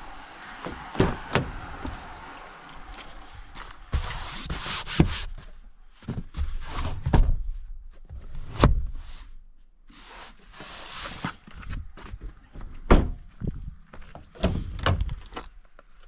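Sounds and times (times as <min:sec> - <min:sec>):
car doors thunking: 0:00.6 - 0:02.0.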